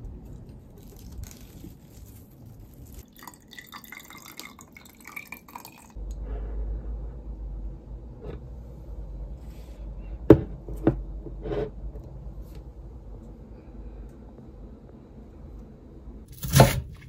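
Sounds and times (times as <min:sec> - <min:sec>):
low hum: 0:06.0 - 0:17.0
vase knocking on a desk: 0:10.3 - 0:11.0.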